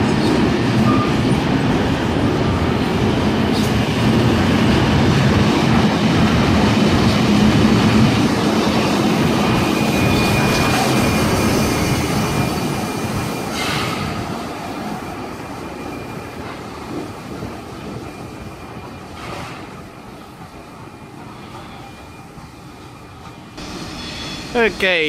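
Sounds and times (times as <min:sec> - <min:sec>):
train wheels rumbling: 0:00.0 - 0:25.0.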